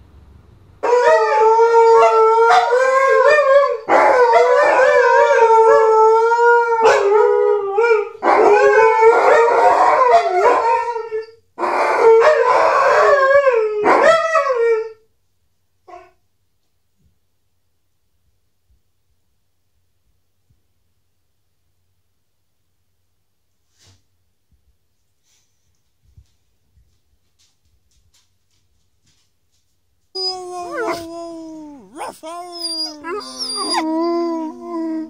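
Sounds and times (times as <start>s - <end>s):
dogs howling: 0.9s - 10.8s, 30.2s - 35.0s.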